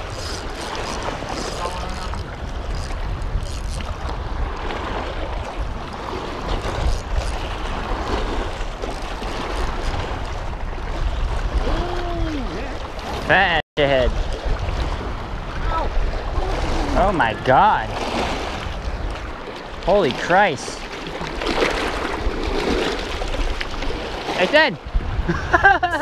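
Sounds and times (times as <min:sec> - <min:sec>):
water washing against rocks: 0:00.0 - 0:04.1, 0:19.6 - 0:24.6
wind buffeting microphone: 0:00.0 - 0:20.2, 0:20.8 - 0:26.0.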